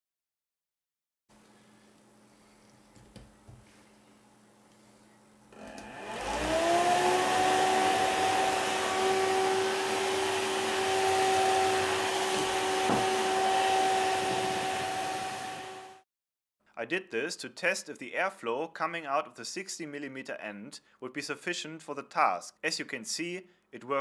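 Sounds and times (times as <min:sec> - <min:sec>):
fan whining: 0:05.5 - 0:16.0.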